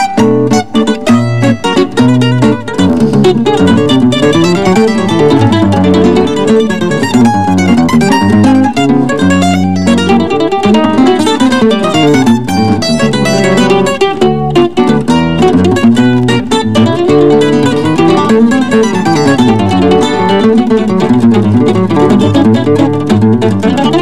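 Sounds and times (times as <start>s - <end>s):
guitar bass lines: 0.0s - 24.0s
mandolin picking fast melody: 0.0s - 24.0s.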